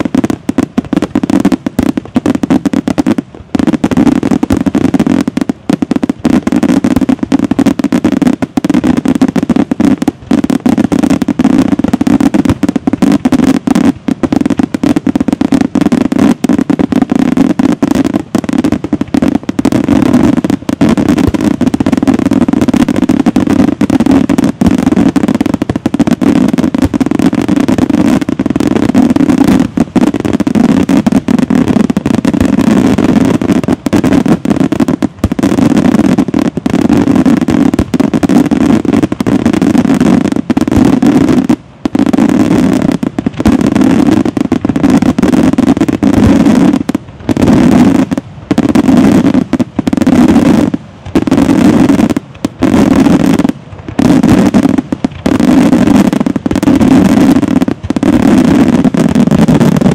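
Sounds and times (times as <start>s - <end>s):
fireworks bursts and bangs: 0.0s - 59.9s.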